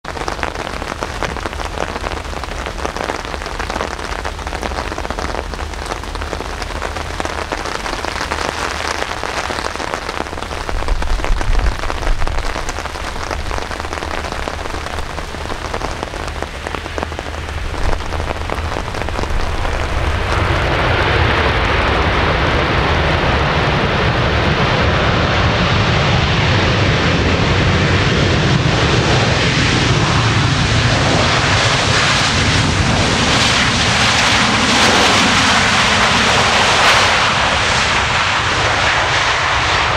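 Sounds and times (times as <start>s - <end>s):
rain hiss: 0.0s - 24.1s
jet engines of landing airliner: 0.1s - 39.9s.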